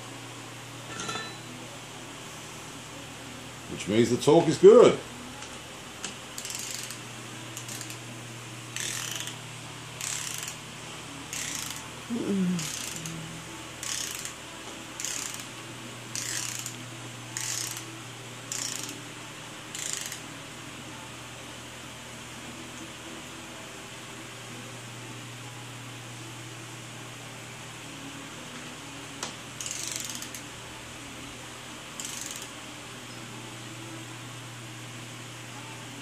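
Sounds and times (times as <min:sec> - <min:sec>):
steady low hum: 0:00.0 - 0:36.0
ratchet wrench clicking: 0:06.4 - 0:07.0, 0:07.6 - 0:08.0, 0:08.8 - 0:09.4, 0:10.0 - 0:10.6, 0:11.3 - 0:11.8, 0:12.6 - 0:13.1, 0:13.8 - 0:14.4, 0:15.0 - 0:15.5, 0:16.1 - 0:16.8, 0:17.4 - 0:17.9, 0:18.5 - 0:19.0, 0:19.7 - 0:20.2, 0:29.6 - 0:30.4, 0:32.0 - 0:32.5.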